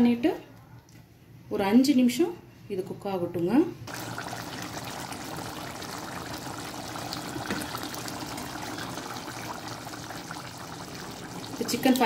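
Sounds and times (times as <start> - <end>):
curry simmering and bubbling: 3.9 - 12.0.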